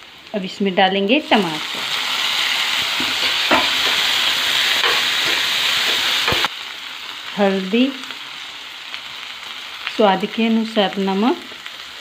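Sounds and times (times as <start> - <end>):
vegetables sizzling in hot oil: 0.0 - 12.0
spatula scraping a pan: 1.6 - 6.5.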